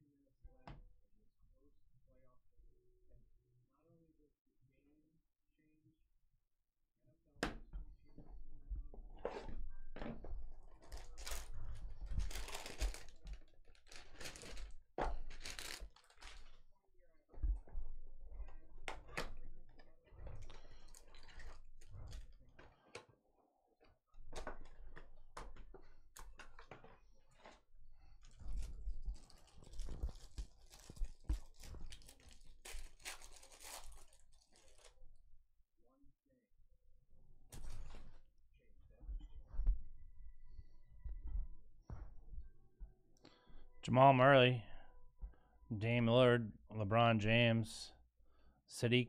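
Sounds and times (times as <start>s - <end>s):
plastic wrapper crinkling and tearing: 10.8s - 16.6s, 28.2s - 35.0s.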